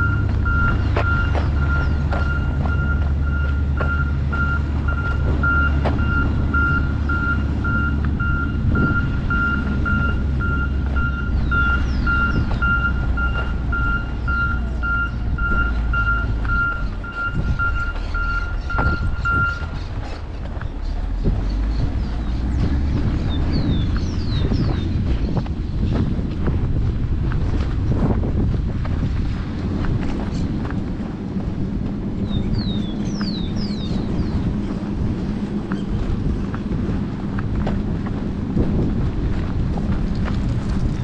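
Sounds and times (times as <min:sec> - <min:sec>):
reversing alarm beeping: 0:00.0 - 0:19.7
engine rumbling: 0:00.0 - 0:41.0.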